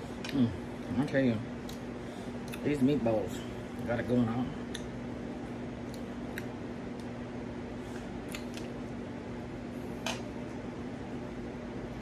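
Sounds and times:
steady low hum: 0:00.0 - 0:12.0
person chewing food: 0:04.6 - 0:05.0, 0:05.8 - 0:07.2, 0:07.9 - 0:09.0.

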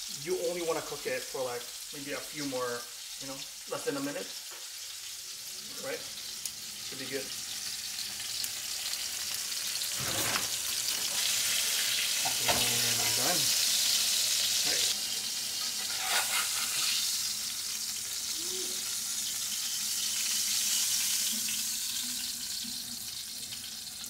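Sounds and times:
fish sizzling in a pan: 0:00.0 - 0:24.0
metal spatula scraping a pan: 0:09.9 - 0:10.7, 0:15.6 - 0:17.2.

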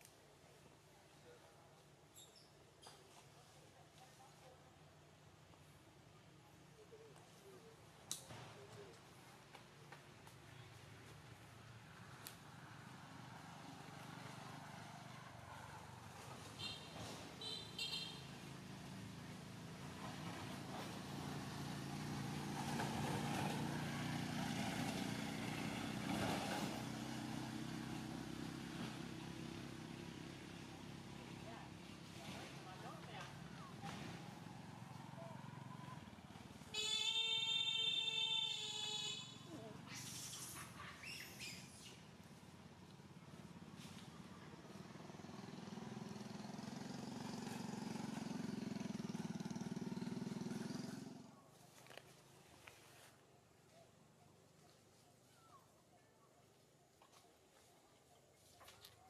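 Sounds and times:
vehicle engine running: 0:42.1 - 0:52.8.

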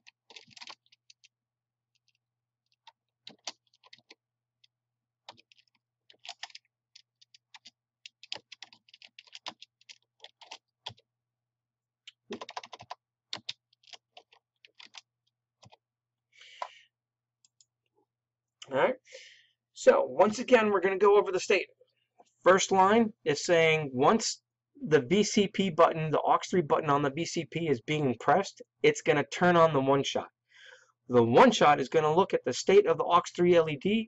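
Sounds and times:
typing on computer keyboard: 0:00.0 - 0:01.3, 0:01.9 - 0:11.1, 0:12.1 - 0:15.8.

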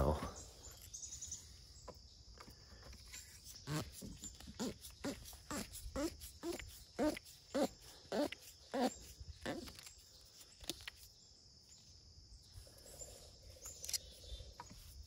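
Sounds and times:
animal calling: 0:03.7 - 0:09.9.

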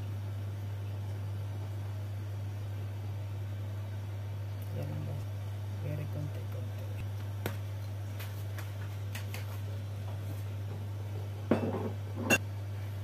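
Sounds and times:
glass bottle clinks and knocks: 0:11.5 - 0:12.4.

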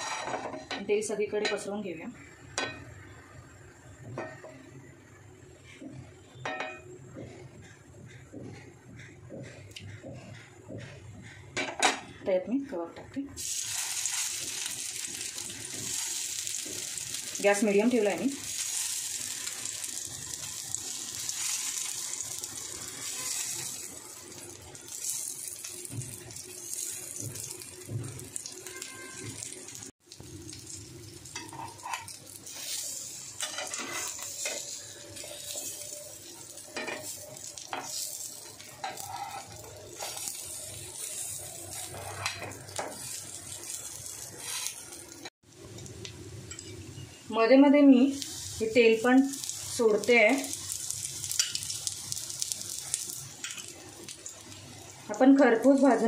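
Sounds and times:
kebabs sizzling in oil: 0:00.0 - 0:56.0
metal spoon clinking on pan: 0:46.5 - 0:46.8.

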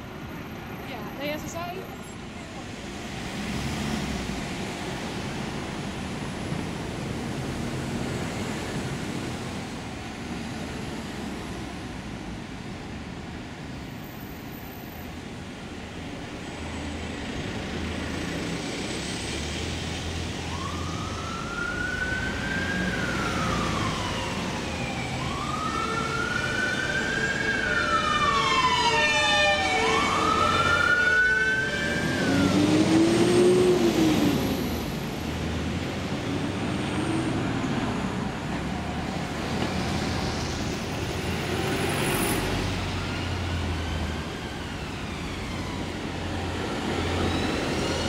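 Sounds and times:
road traffic passing: 0:00.0 - 0:48.0
emergency vehicle siren wailing: 0:19.3 - 0:48.0.

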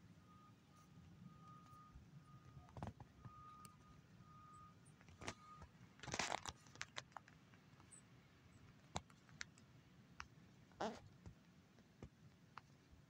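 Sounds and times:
distant vehicle backup beeper: 0:00.0 - 0:05.8.

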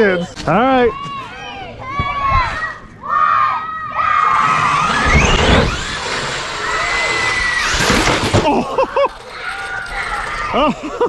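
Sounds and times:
children shouting and cheering: 0:00.8 - 0:11.0
electric toy truck motors whining: 0:04.2 - 0:11.0.

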